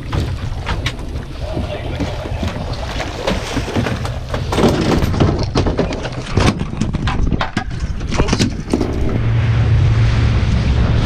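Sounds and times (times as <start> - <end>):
fish thumping against boat hull: 0.0 - 8.8
wind and water rumble: 0.0 - 11.0.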